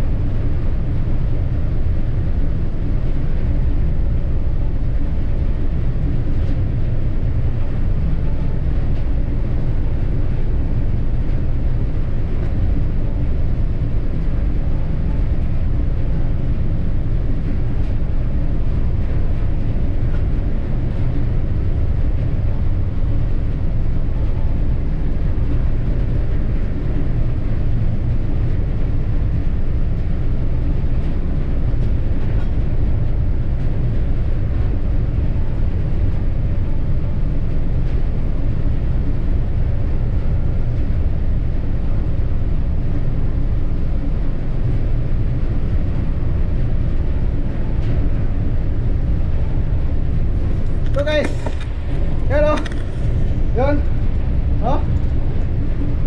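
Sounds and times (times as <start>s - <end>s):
wind: 0.0s - 56.0s
ship engines rumbling: 36.9s - 56.0s.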